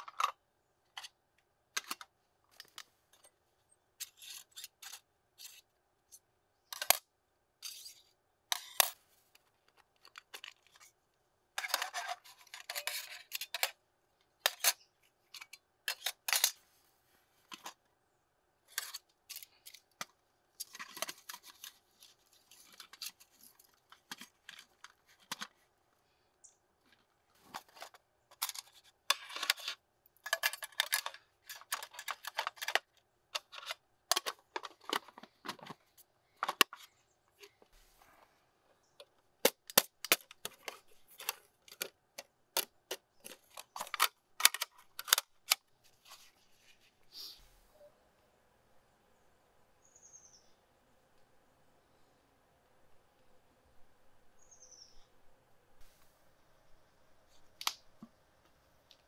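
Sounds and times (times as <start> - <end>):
metal tin set on table: 0.0 - 13.8, 14.4 - 16.7, 18.7 - 25.6, 27.4 - 35.8, 36.4 - 37.6, 38.9 - 47.4.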